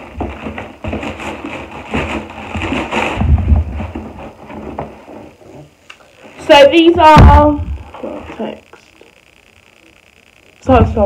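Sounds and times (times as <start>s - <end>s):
packaging crinkling and rustling: 0.0s - 5.7s
low thump: 7.1s - 7.8s.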